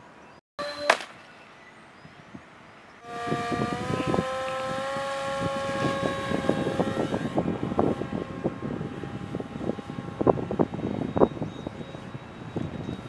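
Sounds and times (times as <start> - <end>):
wind buffeting microphone: 2.0 - 13.0
electric motor propeller whine: 3.0 - 13.0.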